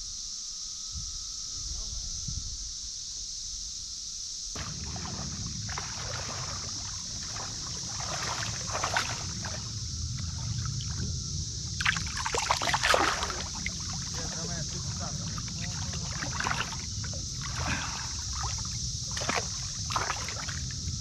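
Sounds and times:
steady high-pitched drone: 4.6 - 21.0
water splashing beside boat: 4.6 - 21.0.

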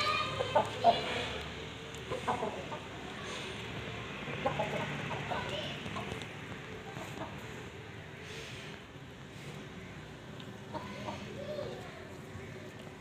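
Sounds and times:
chickens clucking: 0.4 - 1.1, 2.0 - 3.2, 4.2 - 7.7, 10.5 - 11.8.

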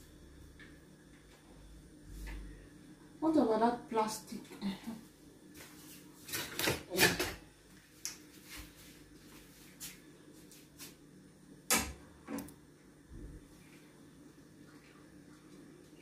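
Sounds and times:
kitchen items knocking and clattering: 6.3 - 7.4.

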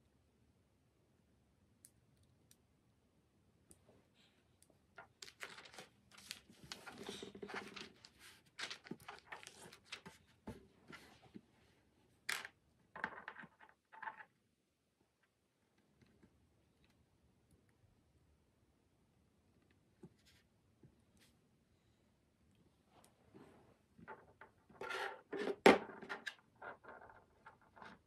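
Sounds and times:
paper rustling: 5.0 - 11.1.

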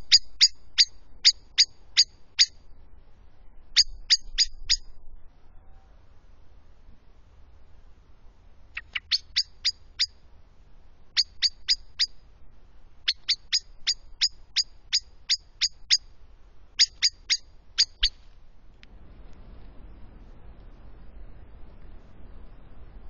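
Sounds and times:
blackbird alarm call: 0.0 - 2.6, 3.8 - 4.9, 8.8 - 10.2, 11.2 - 12.2, 13.1 - 16.0, 16.8 - 18.2.

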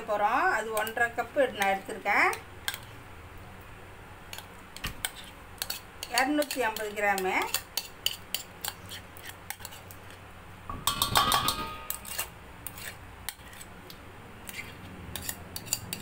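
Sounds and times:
spoon scraping butter from bowl: 4.3 - 10.2, 11.9 - 13.7, 14.4 - 16.0.

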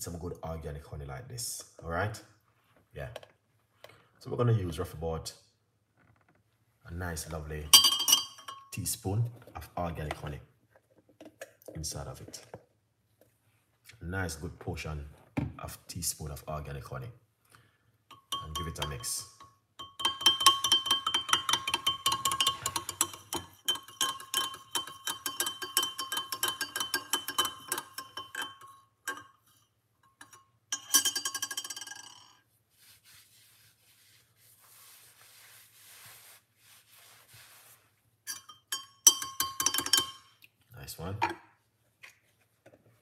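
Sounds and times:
spoon clinking in glass jug: 7.7 - 8.9, 18.1 - 32.4, 38.3 - 40.4.

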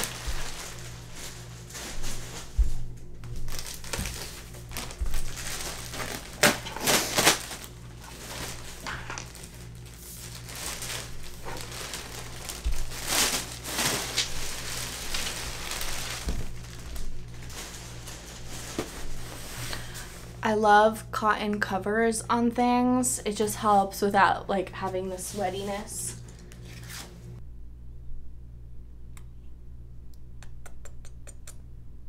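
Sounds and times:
plastic sheet crinkling: 0.0 - 20.3.

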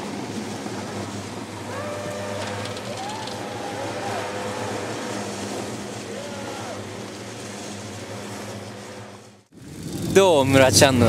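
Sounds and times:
outdoor noise: 0.0 - 11.0
steady low hum: 0.0 - 11.0
distant voices shouting: 1.4 - 8.3.

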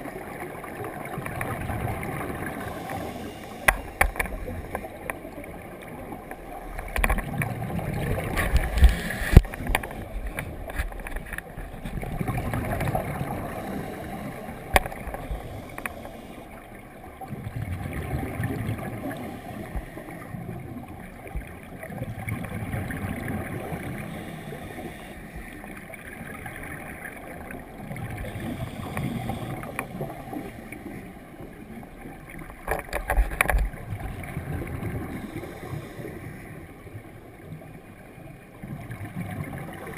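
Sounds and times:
diver's regulator exhaled bubbles: 6.7 - 16.5, 17.2 - 20.9.

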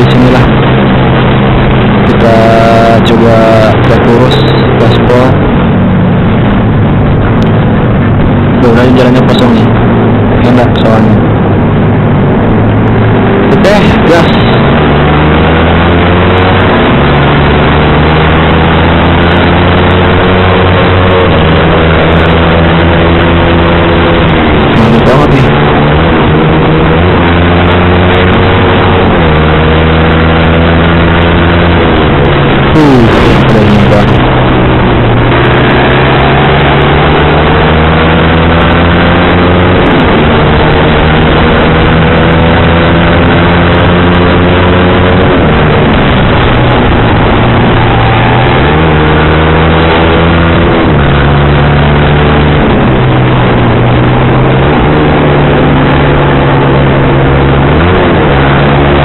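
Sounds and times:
motorcycle engine accelerating: 0.0 - 59.0
wind noise: 0.0 - 59.0.

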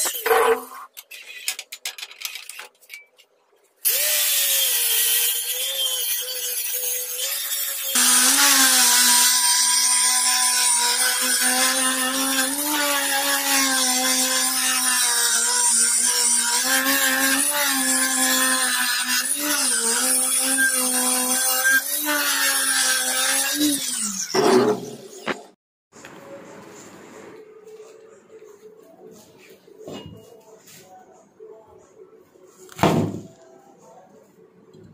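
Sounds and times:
angle grinder grinding metal: 3.8 - 25.3.

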